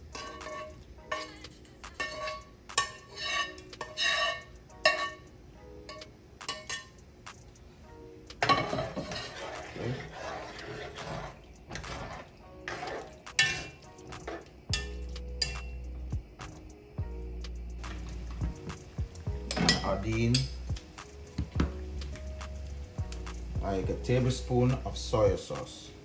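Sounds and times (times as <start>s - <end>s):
metal spoon scraping frying pan: 0.0s - 5.3s, 8.4s - 15.7s
pan clattering on stove: 0.0s - 5.3s, 5.9s - 7.0s, 8.3s - 15.7s, 19.4s - 20.5s.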